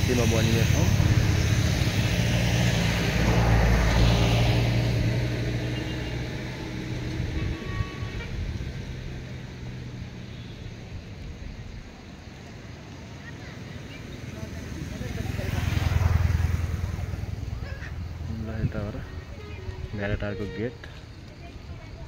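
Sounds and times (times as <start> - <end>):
vehicle engine running: 0.0 - 10.1.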